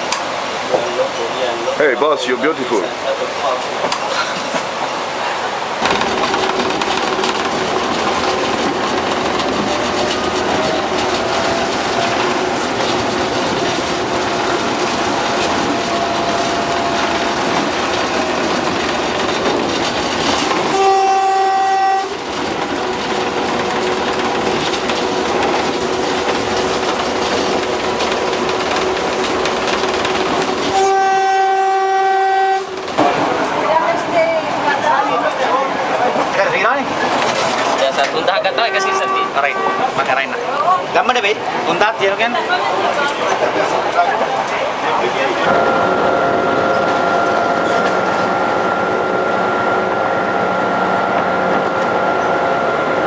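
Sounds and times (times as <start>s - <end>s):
locomotive engine and wheels: 0.0s - 53.0s
train horn blasts: 20.6s - 22.2s, 30.6s - 32.8s, 38.5s - 40.2s.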